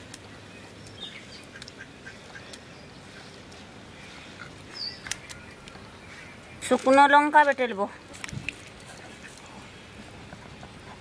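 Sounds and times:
low steady hiss: 0:00.0 - 0:11.0
ducks quacking: 0:01.4 - 0:03.4.

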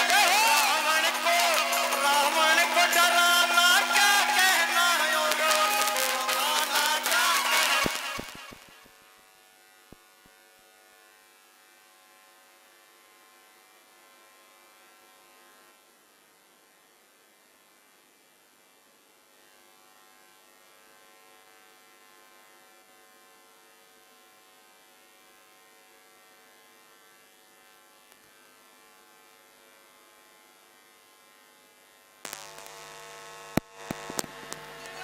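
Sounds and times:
loud live music: 0:00.0 - 0:08.6
electrical hum from speakers: 0:32.2 - 0:35.0.

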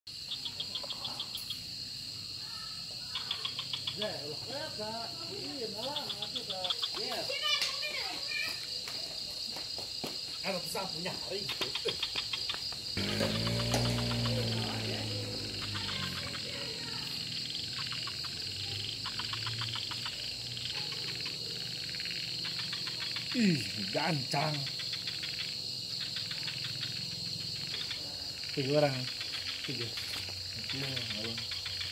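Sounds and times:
frogs calling in rapid clicks: 0:00.1 - 0:31.9
insect high-pitched trill: 0:00.1 - 0:31.9
rapid insect chirps: 0:00.1 - 0:31.9
low sounds rising and falling: 0:13.0 - 0:16.5.

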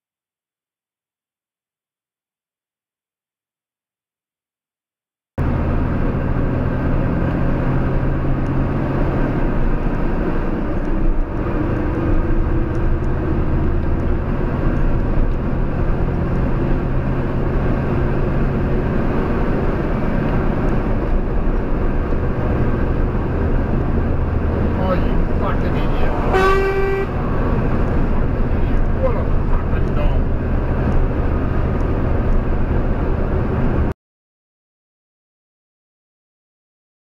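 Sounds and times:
in-cabin engine and road noise: 0:05.4 - 0:34.0.

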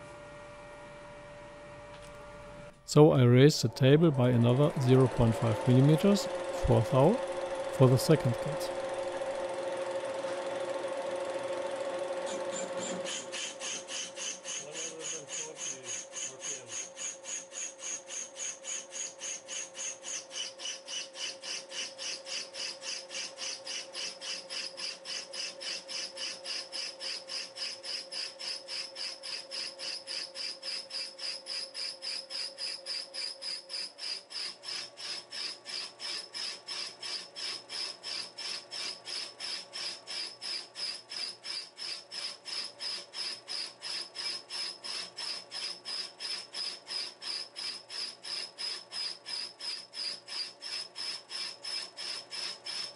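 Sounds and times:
rhythmic rasping cut: 0:02.9 - 0:09.1.

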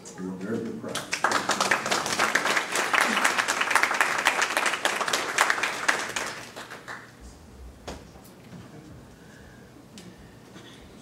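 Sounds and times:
audience applauding: 0:00.9 - 0:07.2.

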